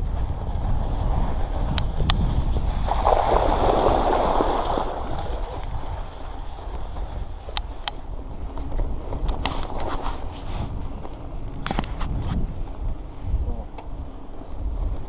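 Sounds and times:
tyres rolling on gravel: 0.0s - 15.0s
wind rumble on microphone: 0.0s - 15.0s
bicycle tyres splashing through water: 0.8s - 7.5s.

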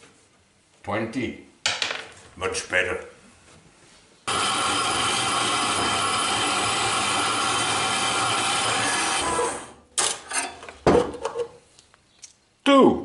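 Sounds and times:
bandsaw cutting metal: 4.3s - 10.5s.

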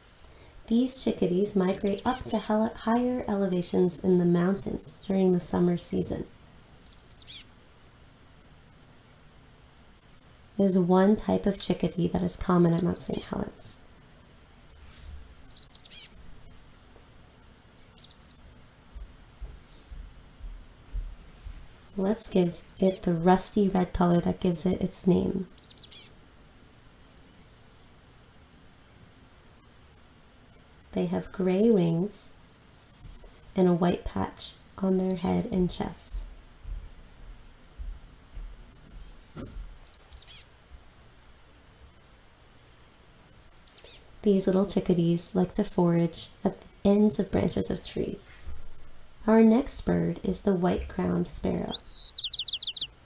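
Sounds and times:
chickadee calling: 1.2s - 2.7s, 6.2s - 7.6s, 9.7s - 10.5s, 12.6s - 14.7s, 15.5s - 16.6s, 17.4s - 18.4s, 21.7s - 23.3s, 25.4s - 27.4s, 30.6s - 33.5s, 34.8s - 35.6s, 38.6s - 40.5s, 42.6s - 44.1s, 51.2s - 53.0s.

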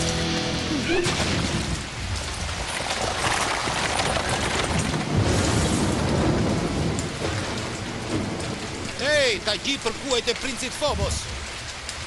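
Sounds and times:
low rumbling: 0.0s - 10.4s
heavy rain: 0.0s - 12.0s.

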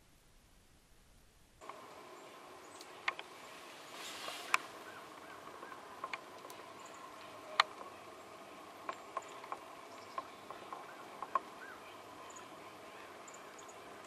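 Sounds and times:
faint steady background: 0.0s - 14.0s
sharp ticks and taps: 5.5s - 6.6s, 8.8s - 11.5s.

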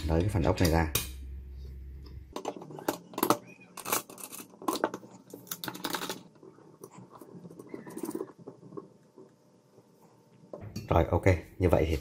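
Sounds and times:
metal parts clicking and knocking: 2.4s - 6.4s
small metal scrapes: 2.6s - 8.9s.

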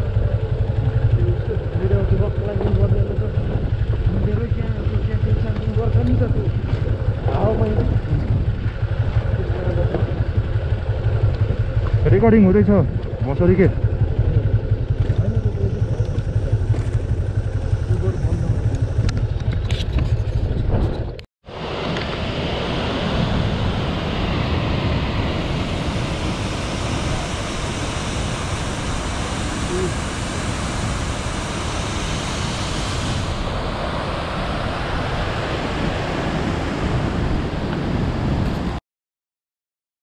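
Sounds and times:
wind noise on microphone: 3.2s - 12.1s, 14.0s - 38.8s.

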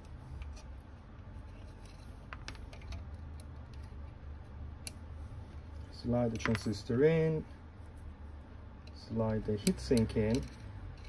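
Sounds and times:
low steady hum: 0.0s - 11.0s
small metal clicks and taps: 8.8s - 11.0s.

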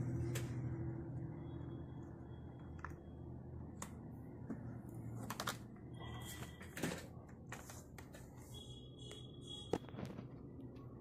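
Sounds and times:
plastic clicks and knocks of laptop: 5.2s - 5.7s.

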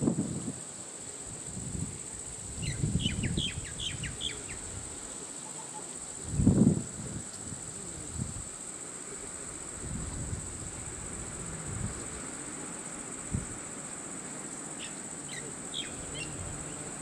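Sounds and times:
insect chorus droning: 0.0s - 17.0s
bird chirping: 14.8s - 16.9s.

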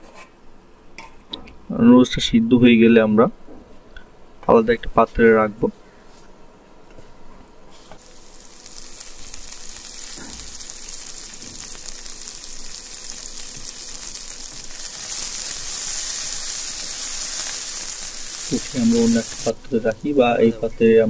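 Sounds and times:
boiling water hissing: 7.7s - 21.0s.

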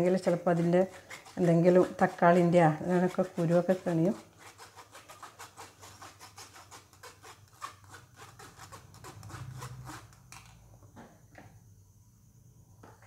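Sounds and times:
metal spoon scraping mesh strainer: 0.0s - 10.4s.

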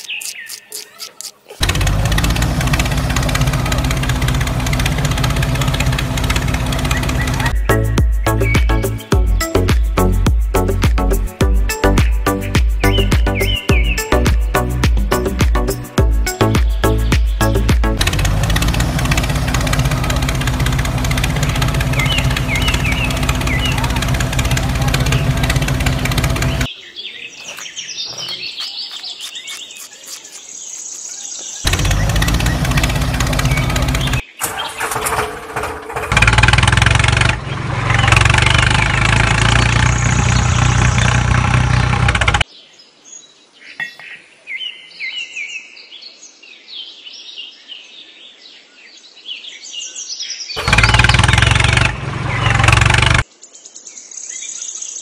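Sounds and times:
birds chirping: 0.0s - 55.0s
tractor engine running: 1.6s - 26.7s, 31.6s - 42.4s, 50.6s - 53.2s.

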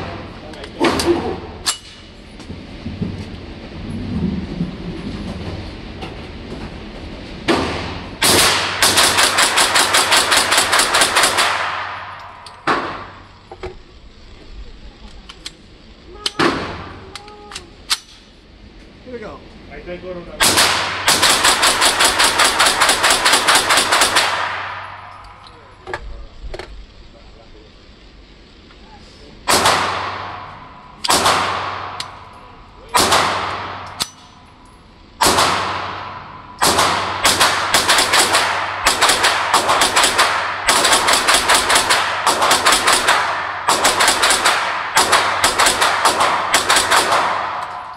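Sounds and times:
rapid gunshots echoing indoors: 7.4s - 13.2s, 20.4s - 25.2s, 29.4s - 32.3s, 32.9s - 34.0s, 35.2s - 47.9s.

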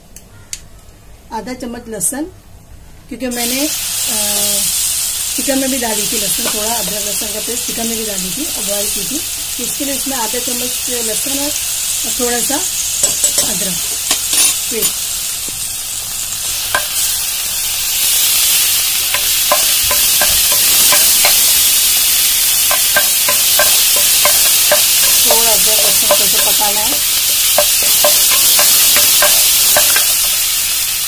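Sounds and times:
garlic sizzling in hot oil: 3.3s - 31.0s
spatula scraping and tapping pan: 16.7s - 17.0s, 19.1s - 21.8s, 22.5s - 30.3s.

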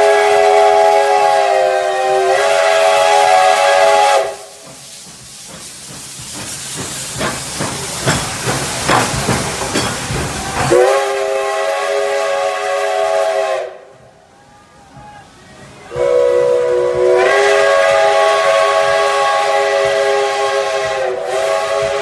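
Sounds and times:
steam locomotive whistle: 0.0s - 4.7s, 10.6s - 22.0s
steam hissing: 0.0s - 22.0s.

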